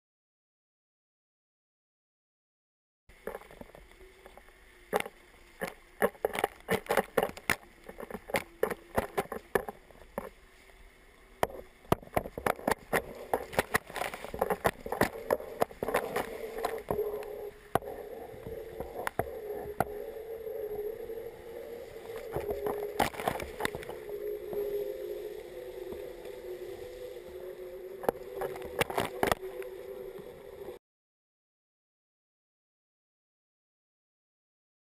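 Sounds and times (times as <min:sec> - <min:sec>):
rush of water: 0:03.1 - 0:30.8
wavering hum: 0:03.1 - 0:30.8
water splashing against camera: 0:03.2 - 0:10.8, 0:11.4 - 0:30.8.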